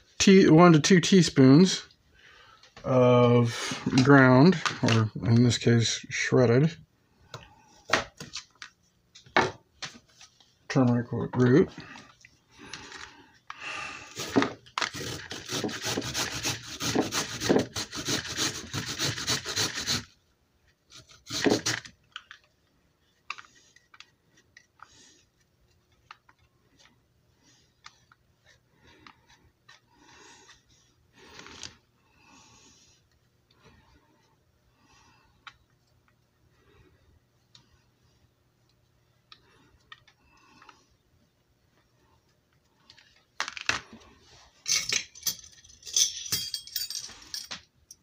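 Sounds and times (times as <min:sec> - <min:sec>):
root rasping on a grater: 0:14.9 - 0:20.1.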